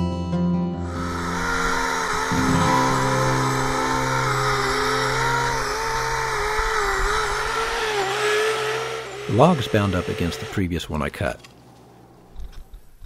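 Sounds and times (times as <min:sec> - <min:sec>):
electric chainsaw motor whine: 0:00.9 - 0:10.8
chain rasping through wood: 0:07.1 - 0:10.5.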